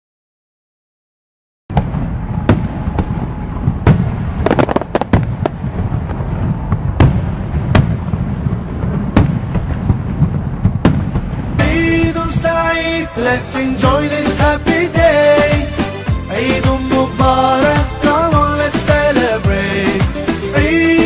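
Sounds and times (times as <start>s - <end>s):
low rumble: 1.7s - 14.7s
firework bangs: 1.7s - 16.7s.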